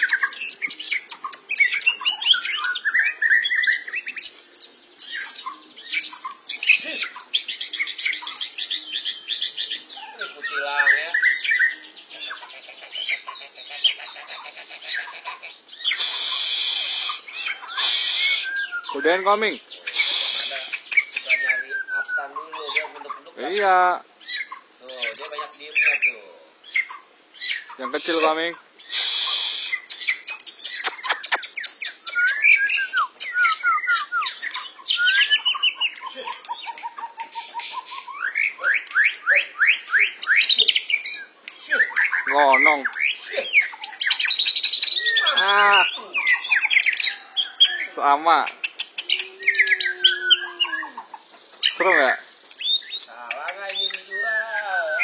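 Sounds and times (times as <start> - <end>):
caged birds singing: 0.0 - 55.0
brief hiss: 16.0 - 18.6, 19.9 - 21.0, 28.9 - 30.0.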